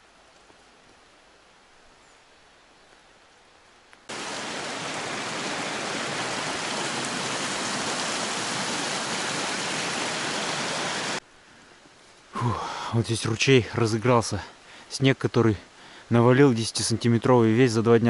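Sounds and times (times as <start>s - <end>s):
stream rushing over rocks: 4.1s - 11.2s.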